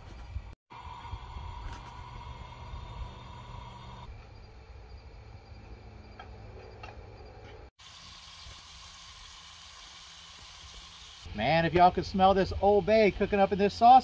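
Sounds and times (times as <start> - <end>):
insects chirping: 0.8 - 11.4
faint sizzle from pan: 7.8 - 11.3.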